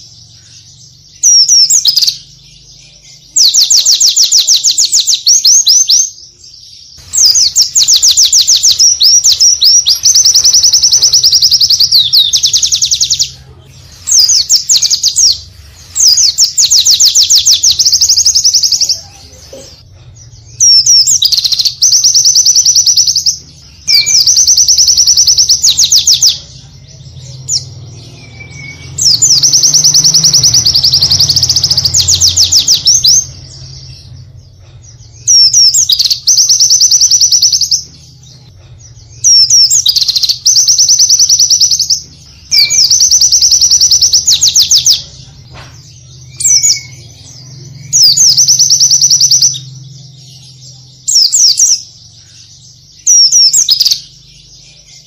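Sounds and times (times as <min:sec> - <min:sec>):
songbird trilling: 0:07.0 - 0:13.4, 0:46.2 - 0:55.0.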